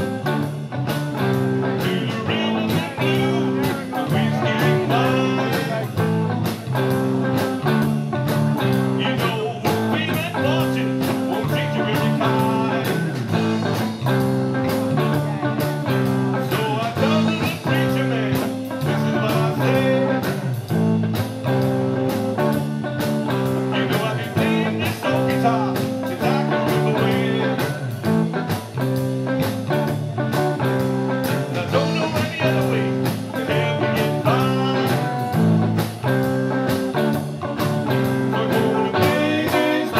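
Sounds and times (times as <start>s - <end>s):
distorted electric guitar: 0.0s - 39.9s
drum kit steady beat: 0.0s - 39.9s
electric bass: 0.0s - 39.9s.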